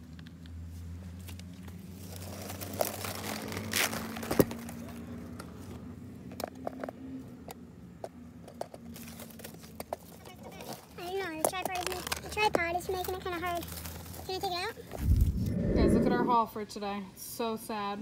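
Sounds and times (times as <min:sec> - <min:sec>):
dry grass rustling and crackling: 0:01.2 - 0:04.9, 0:13.0 - 0:15.4.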